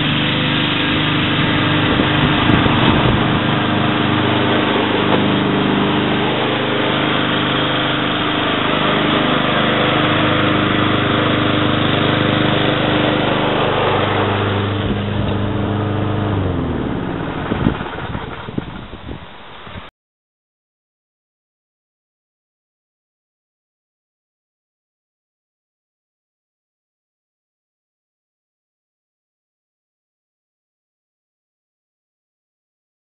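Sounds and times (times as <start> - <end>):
lawn mower engine running: 0.0 - 19.8.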